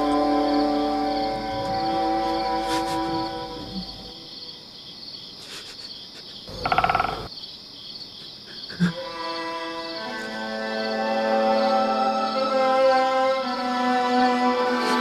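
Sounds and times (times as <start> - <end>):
soft held music: 0.0 - 4.3
crickets chirping: 0.0 - 15.0.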